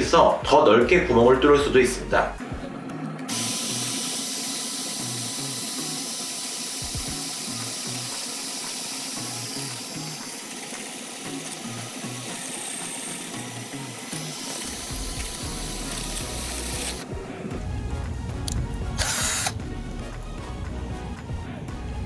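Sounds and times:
background music with beat: 0:00.0 - 0:22.0
drill boring through wood: 0:03.3 - 0:17.0, 0:19.0 - 0:19.6.

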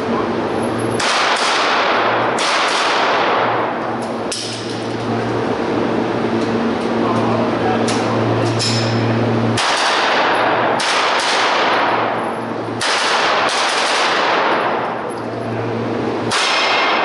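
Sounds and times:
gunshots echoing indoors: 0:00.9 - 0:04.0, 0:09.5 - 0:15.2, 0:16.2 - 0:17.0.

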